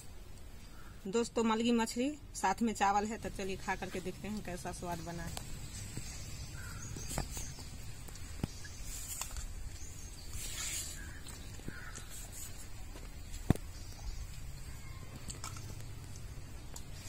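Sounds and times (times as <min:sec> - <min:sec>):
crow cawing: 0:06.5 - 0:07.0, 0:11.0 - 0:12.1.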